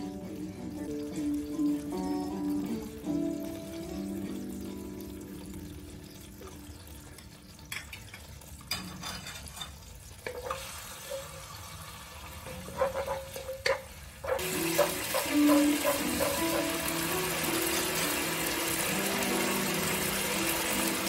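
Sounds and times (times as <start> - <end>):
sauce sizzling and bubbling: 0.0 - 21.0
wooden spatula scraping: 12.5 - 16.6.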